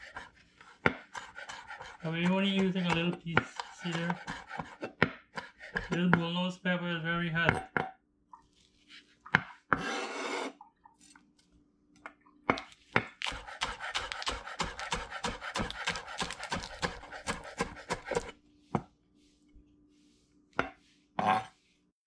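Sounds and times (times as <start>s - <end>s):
knife chopping on wooden board: 0.0s - 6.2s, 12.5s - 18.9s.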